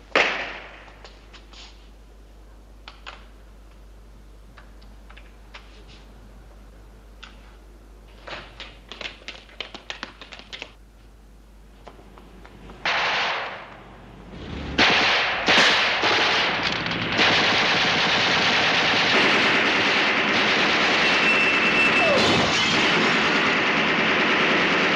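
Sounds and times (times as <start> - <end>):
gunfire: 12.8 - 13.7, 14.6 - 24.9.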